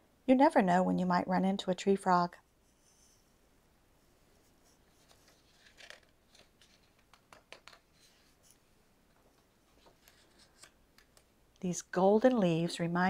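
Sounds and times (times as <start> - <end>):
paper pages turning: 4.6 - 8.6, 9.3 - 11.3.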